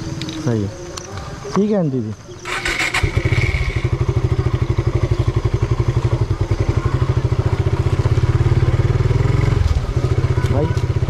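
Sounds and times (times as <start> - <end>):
motorcycle engine running: 2.2 - 11.0.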